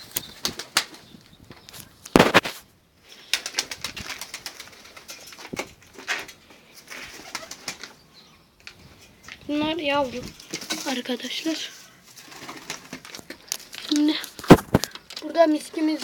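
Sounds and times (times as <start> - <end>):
pigeon wings fluttering: 0.0 - 1.1, 2.1 - 2.6, 3.2 - 8.0, 10.2 - 15.5
taps and scuffles on concrete: 1.7 - 2.6.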